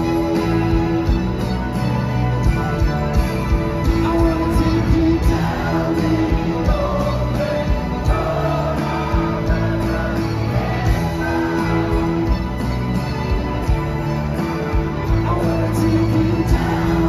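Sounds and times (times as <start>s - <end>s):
live rock band playing: 0.0s - 17.0s
steady drum beat: 0.0s - 17.0s
person singing: 2.4s - 12.6s, 15.0s - 17.0s.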